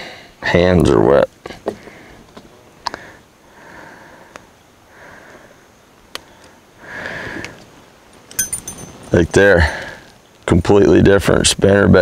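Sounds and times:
breathing through the nose: 0:00.0 - 0:00.4, 0:02.9 - 0:05.7, 0:06.3 - 0:07.6
metal spinner blades jingling: 0:08.1 - 0:10.0.

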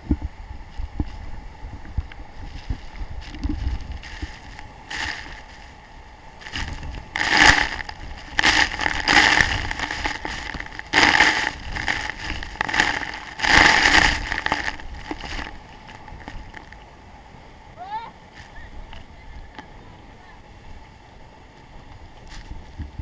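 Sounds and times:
wind hitting microphone: 0:00.0 - 0:05.6, 0:06.4 - 0:16.7, 0:21.8 - 0:23.0
waterfall spray rushing: 0:00.3 - 0:22.8.

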